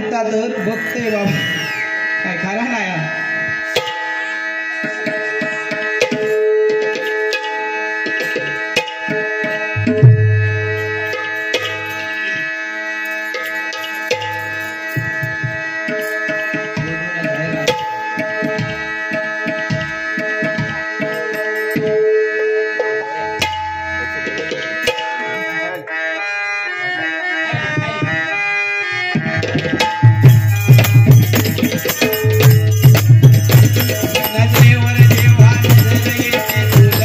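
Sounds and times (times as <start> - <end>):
harmonium melody: 0.0 - 37.0
hand drum strokes: 29.3 - 37.0.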